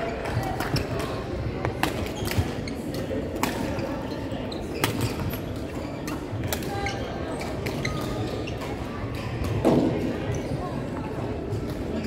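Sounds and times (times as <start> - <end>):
sports hall din: 0.0 - 12.0
shoe squeaks on wooden court: 1.8 - 8.8.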